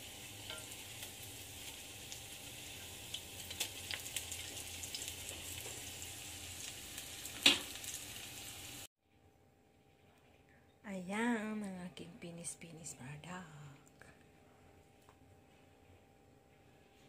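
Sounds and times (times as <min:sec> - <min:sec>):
fritters sizzling in oil: 0:00.0 - 0:08.9.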